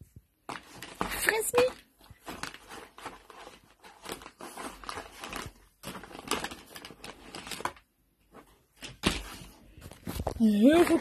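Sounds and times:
plastic packets crinkling in box: 0.5 - 7.9.

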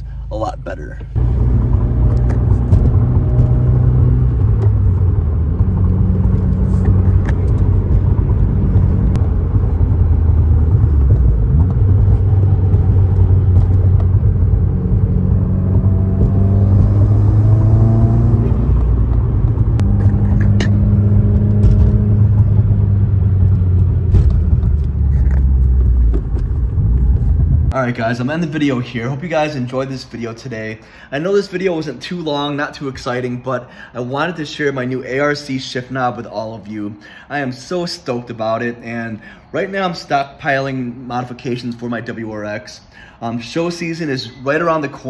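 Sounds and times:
low road rumble: 0.0 - 45.0
car engine revving through gears: 1.2 - 27.7.

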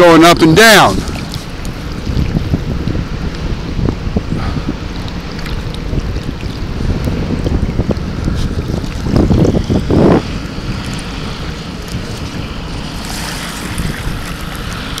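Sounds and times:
waves splashing against tube: 0.0 - 15.0
wind buffeting microphone: 0.0 - 15.0.

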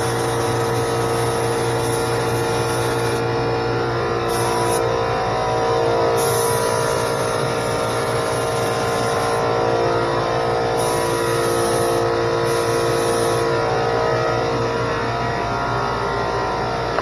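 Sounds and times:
spray gun hissing: 0.0 - 3.2, 4.2 - 5.0, 5.6 - 13.6
air compressor running: 0.0 - 17.0.

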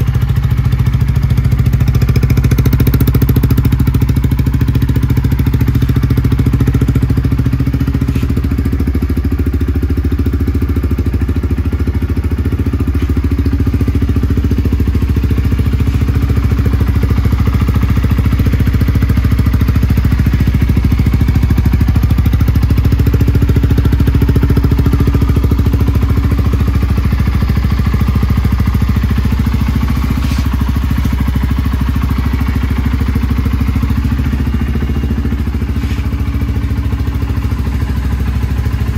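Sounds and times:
motorcycle engine idling: 0.0 - 38.9.

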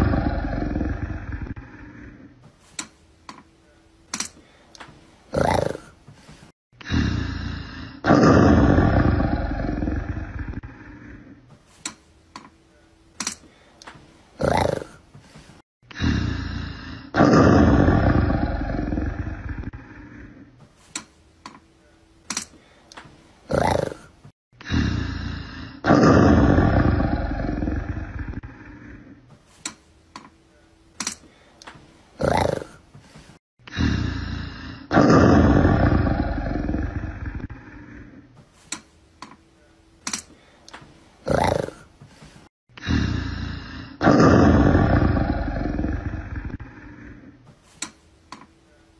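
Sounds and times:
big cat roaring: 0.0 - 2.4, 5.3 - 6.0, 6.8 - 11.4, 14.4 - 15.0, 15.9 - 20.4, 23.5 - 29.2, 32.2 - 32.8, 33.7 - 38.2, 41.2 - 41.9, 42.8 - 47.3.

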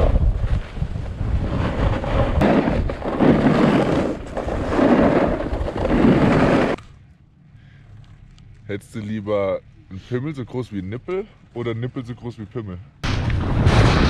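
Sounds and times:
ski edges scraping snow: 0.0 - 6.8
wind rushing over microphone: 0.0 - 6.8.

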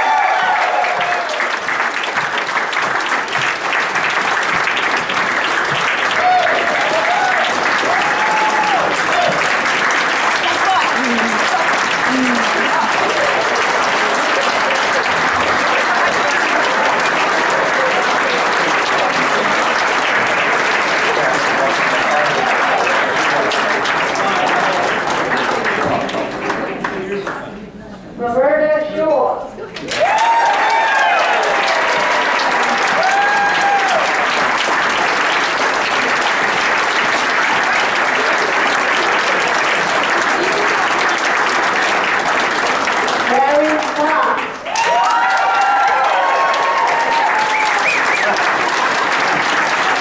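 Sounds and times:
crowd applauding: 0.0 - 27.5, 29.8 - 50.0
person cheering: 6.1 - 9.4, 10.4 - 13.4, 32.9 - 34.2.

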